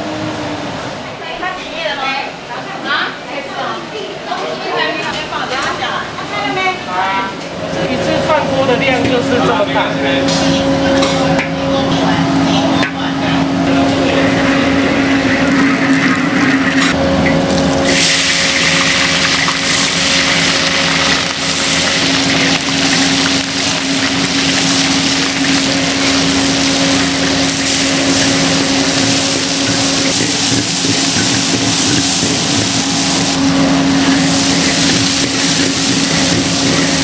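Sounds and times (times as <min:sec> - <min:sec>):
low hum: 0:10.5 - 0:37.0
food sizzling in hot oil: 0:17.3 - 0:37.0.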